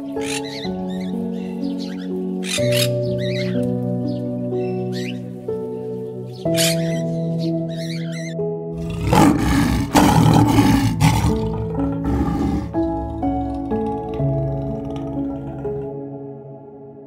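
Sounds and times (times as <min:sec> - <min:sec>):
soft background music: 0:00.0 - 0:17.0
lion roaring: 0:08.8 - 0:16.0.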